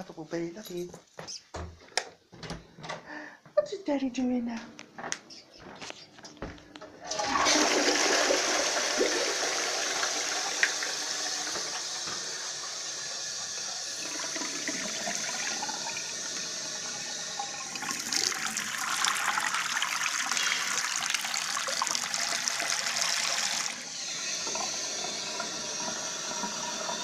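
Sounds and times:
toilet flushing: 0:07.0 - 0:27.0
tap running into sink: 0:10.4 - 0:12.9.

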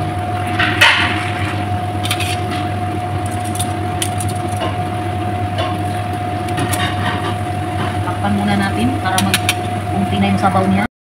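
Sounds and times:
low hum: 0:00.0 - 0:10.9.

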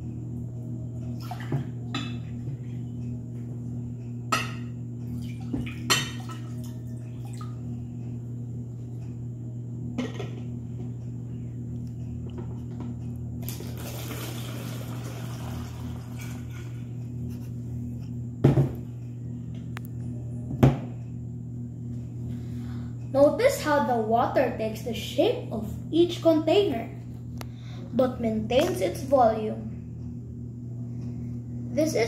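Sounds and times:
steady low hum: 0:00.0 - 0:32.0
water pouring through a funnel: 0:13.4 - 0:16.6.

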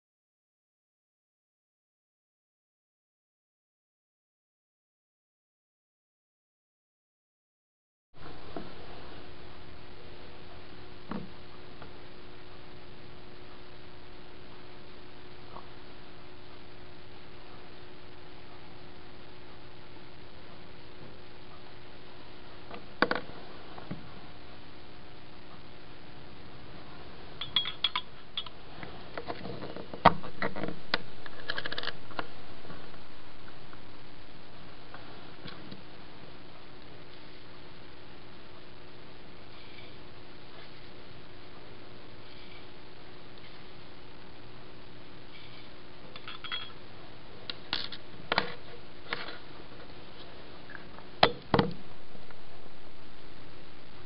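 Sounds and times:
steady background noise: 0:08.2 - 0:54.0
glass and metal labware clinking: 0:27.4 - 0:28.5, 0:46.2 - 0:46.8.

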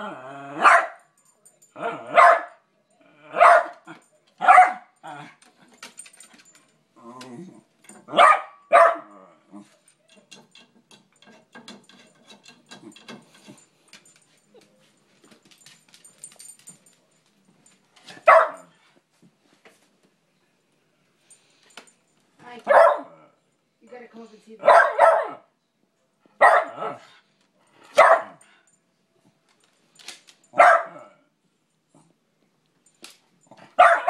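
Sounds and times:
dog barking sharply: 0:08.1 - 0:09.1, 0:18.3 - 0:18.6, 0:24.7 - 0:25.4, 0:26.4 - 0:27.0, 0:28.0 - 0:28.4, 0:30.6 - 0:31.0, 0:33.8 - 0:34.0.

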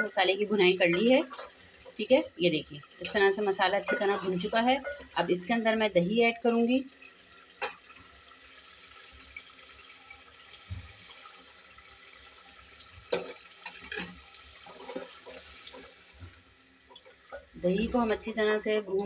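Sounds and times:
food sizzling in a pot: 0:00.0 - 0:19.0
spatula stirring wet food: 0:00.8 - 0:02.1, 0:13.0 - 0:18.1.

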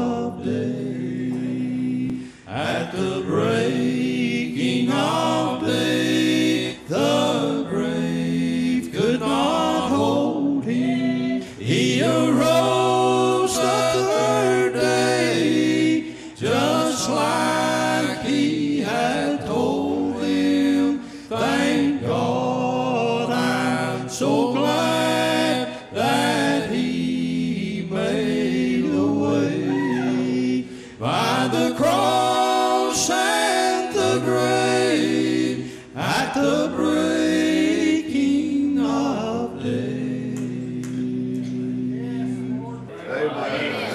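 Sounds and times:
male quartet singing in harmony: 0:00.0 - 0:43.9
singers breathing: 0:02.1 - 0:02.6, 0:16.0 - 0:16.4, 0:21.0 - 0:21.3, 0:30.6 - 0:31.0, 0:35.6 - 0:36.0.

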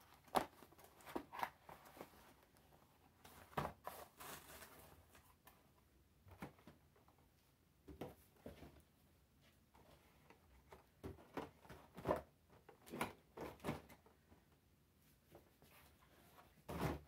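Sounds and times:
plastic packaging rustle: 0:03.7 - 0:05.2.

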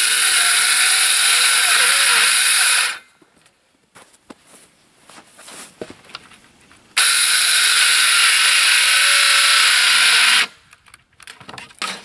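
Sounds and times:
circular saw cutting plywood: 0:00.0 - 0:03.0, 0:07.0 - 0:10.5.

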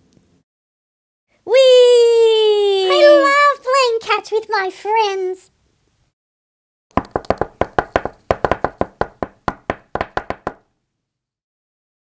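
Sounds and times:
balls bouncing: 0:06.9 - 0:10.6.

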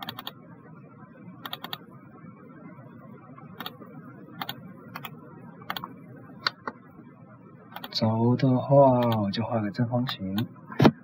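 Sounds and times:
computer mouse clicks: 0:00.0 - 0:00.4, 0:01.4 - 0:01.8, 0:03.6 - 0:03.8, 0:04.4 - 0:05.1, 0:05.7 - 0:06.8, 0:07.7 - 0:08.0
faint background noise: 0:00.0 - 0:11.0.

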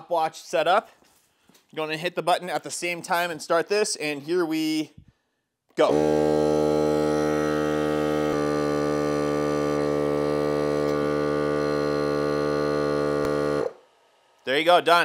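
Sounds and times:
tire inflator compressor humming: 0:05.8 - 0:14.4.

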